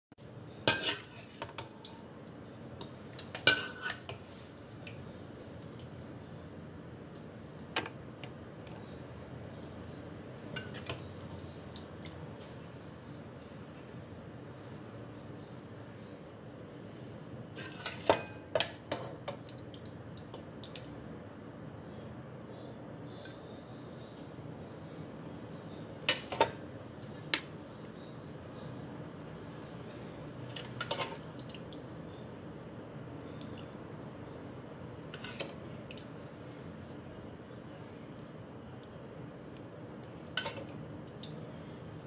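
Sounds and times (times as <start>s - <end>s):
ladle clinking against a wok: 0.7s - 1.8s, 3.2s - 4.2s.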